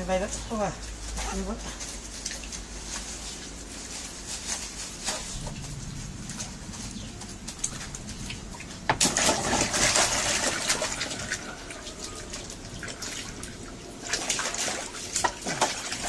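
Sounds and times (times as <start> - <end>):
water splashing in a plastic basin: 5.4 - 16.0.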